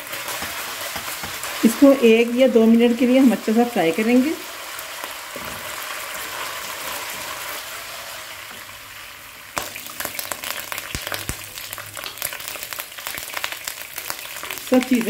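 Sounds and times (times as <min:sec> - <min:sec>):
spices sizzling in oil: 0:00.0 - 0:15.0
sharp crackling pops: 0:09.6 - 0:15.0.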